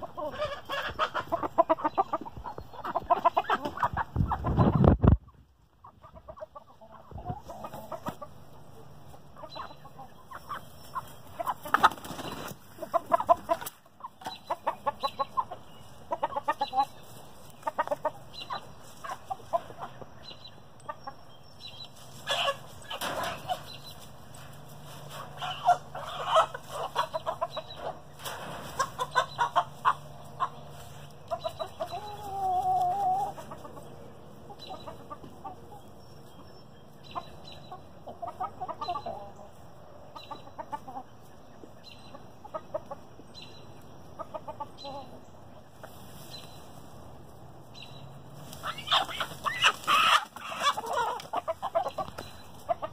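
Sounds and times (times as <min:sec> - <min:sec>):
chicken drawn-out call: 0:00.0 - 0:04.9, 0:22.0 - 0:24.1, 0:25.0 - 0:33.8, 0:48.4 - 0:52.9
chickens clucking: 0:00.0 - 0:52.9.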